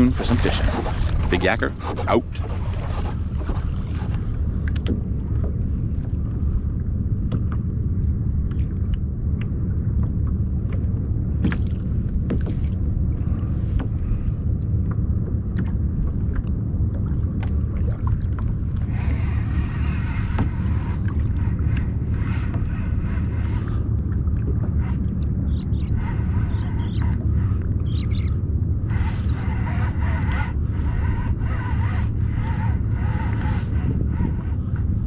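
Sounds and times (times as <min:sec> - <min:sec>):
clicks and knocks from boat: 0:00.0 - 0:06.2, 0:07.2 - 0:28.2
water against hull: 0:00.0 - 0:35.0
wind buffeting microphone: 0:00.0 - 0:35.0.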